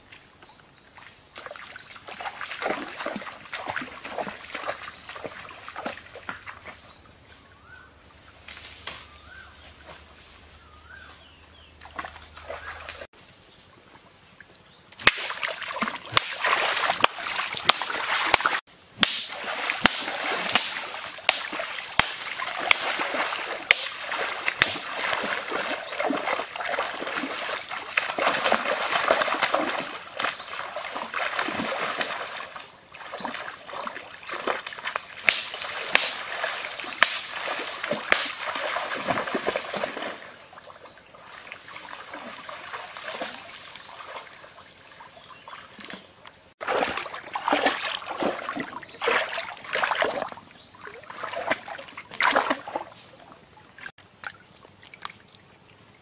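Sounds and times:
river water splashing: 0:00.0 - 0:07.2, 0:10.8 - 0:13.1, 0:13.8 - 0:56.0.

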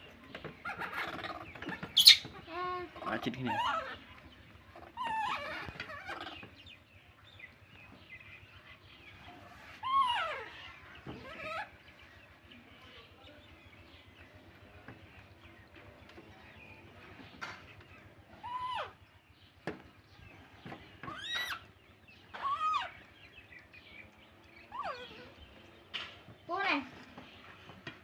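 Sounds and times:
baby monkeys calling: 0:00.4 - 0:07.6, 0:08.3 - 0:12.5, 0:17.6 - 0:19.6, 0:20.8 - 0:27.1.

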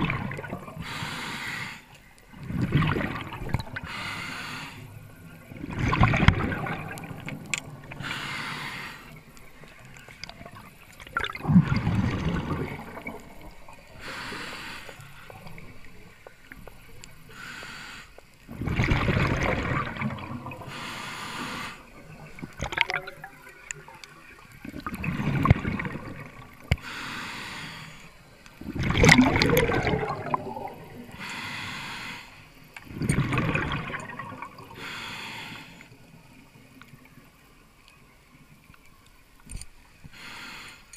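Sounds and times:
gurgling exhaled bubbles: 0:00.0 - 0:01.0, 0:02.3 - 0:03.9, 0:05.3 - 0:08.4, 0:09.1 - 0:16.2, 0:18.5 - 0:26.8, 0:28.6 - 0:31.3, 0:32.8 - 0:35.0
regulator inhale hiss: 0:00.8 - 0:02.1, 0:03.8 - 0:05.0, 0:07.8 - 0:09.3, 0:13.7 - 0:18.4, 0:20.6 - 0:22.2, 0:26.6 - 0:28.5, 0:31.0 - 0:32.7, 0:34.7 - 0:36.2, 0:40.0 - 0:40.9.

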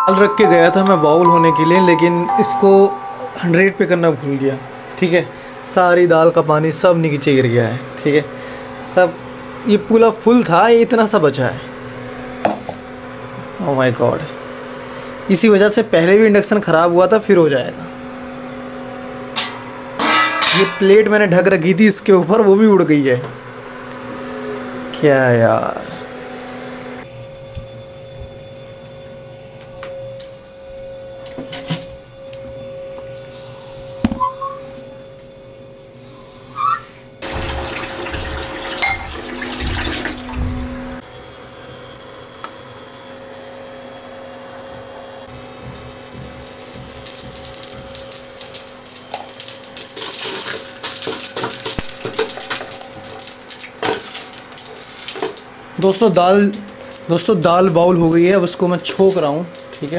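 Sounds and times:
steady high-pitched hum: 0:00.0 - 0:06.4
seeds sizzling in hot oil: 0:46.6 - 0:55.5.

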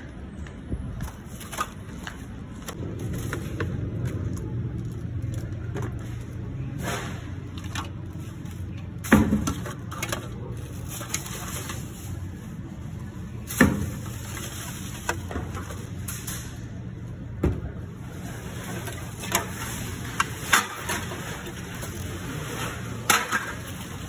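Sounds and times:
low background hum: 0:00.0 - 0:24.0
plastic bottles clattering into bin: 0:05.7 - 0:12.2, 0:13.4 - 0:15.9, 0:18.2 - 0:24.0.

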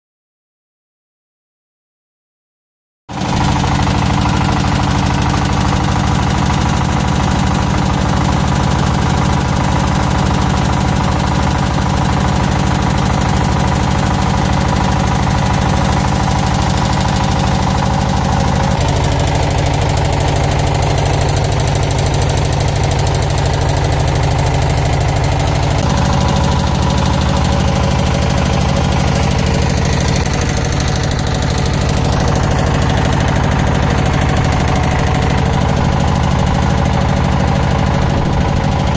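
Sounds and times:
boat engine running: 0:03.1 - 0:38.9.

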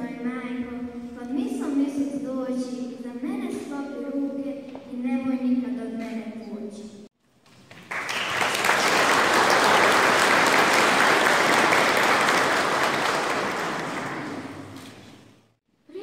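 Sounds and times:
crowd applauding: 0:07.5 - 0:15.2.

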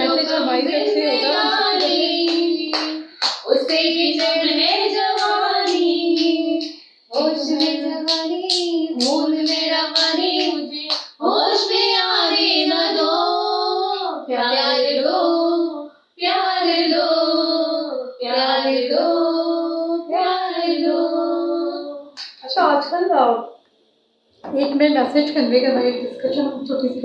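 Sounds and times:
woman singing: 0:00.0 - 0:14.8
hand claps: 0:01.8 - 0:11.2, 0:22.2 - 0:22.4.

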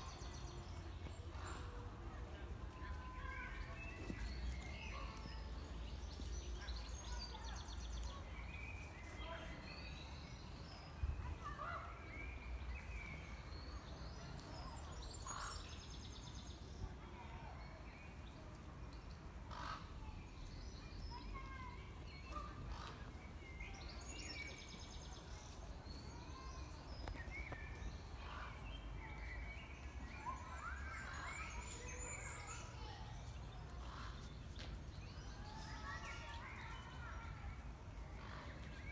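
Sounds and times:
songbirds chirping and singing: 0:17.6 - 0:38.9.

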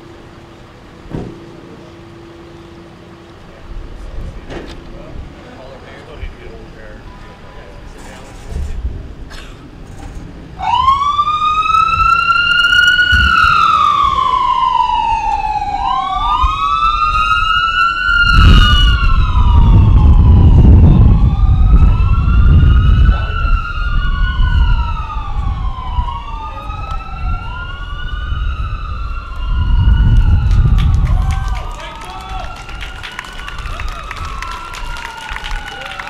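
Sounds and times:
emergency siren wailing: 0:10.5 - 0:36.0
loud low rumble: 0:18.2 - 0:31.6.

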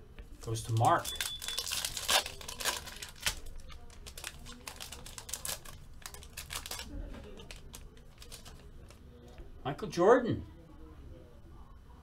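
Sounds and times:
foil wrapper tearing and crinkling: 0:00.4 - 0:09.0.

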